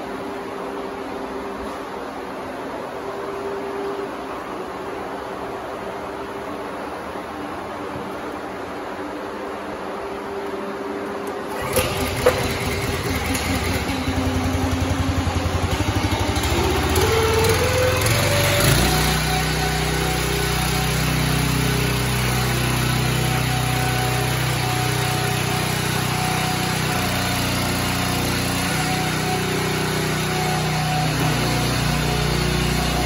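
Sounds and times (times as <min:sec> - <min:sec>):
single-cylinder engine running: 0:11.2 - 0:33.0.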